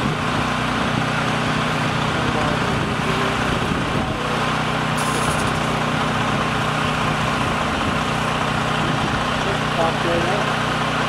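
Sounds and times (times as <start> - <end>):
machinery drone: 0.0 - 11.0
brief high hiss: 5.0 - 5.8.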